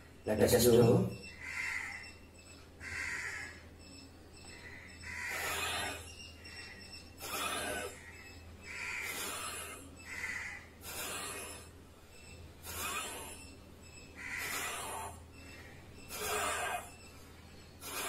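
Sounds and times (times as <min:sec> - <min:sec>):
man breathing forcefully: 0:10.8 - 0:11.7.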